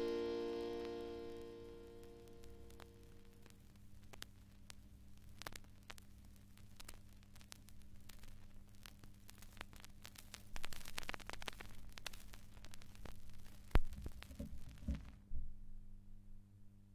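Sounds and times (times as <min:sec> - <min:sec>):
vinyl surface crackle and clicks: 0:00.0 - 0:15.2
mains hum: 0:00.0 - 0:16.9
low thumps on turntable: 0:13.8 - 0:15.5.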